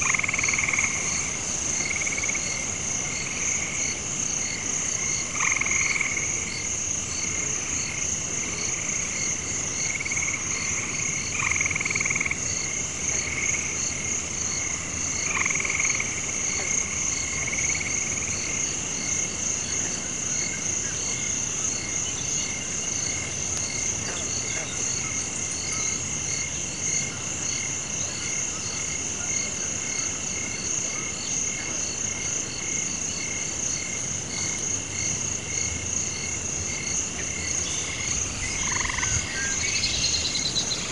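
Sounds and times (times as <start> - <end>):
frogs calling: 0.0 - 40.9
high-pitched insect drone: 36.1 - 40.9.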